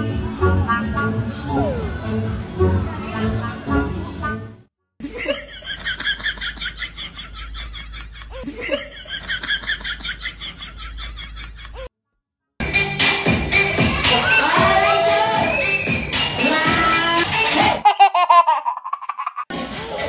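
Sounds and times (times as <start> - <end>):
high-pitched rapid laughter: 17.4 - 19.5.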